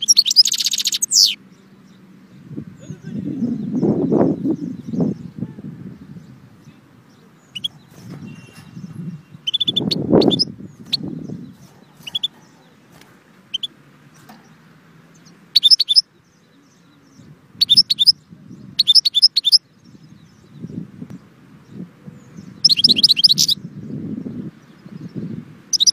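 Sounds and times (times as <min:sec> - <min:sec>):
bird chirping: 0:00.0 - 0:25.9
rapid twittering birdsong: 0:00.0 - 0:25.9.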